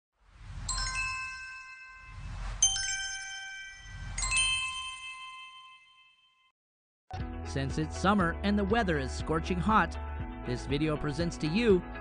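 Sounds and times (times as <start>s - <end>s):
low whooshes: 0.2s - 3.1s
bright ringing chime tones: 0.7s - 6.5s.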